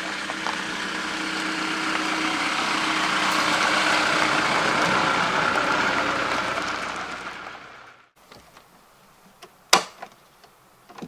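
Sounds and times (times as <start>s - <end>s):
diesel engine driving past: 0.0s - 8.2s.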